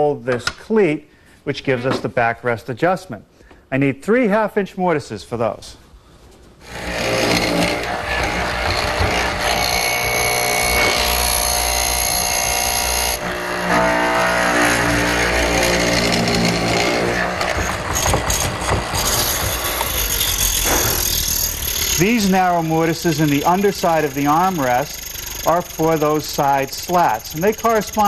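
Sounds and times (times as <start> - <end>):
mortising machine motor running: 6.6 - 28.0
chisel cutting into wood: 6.7 - 28.0.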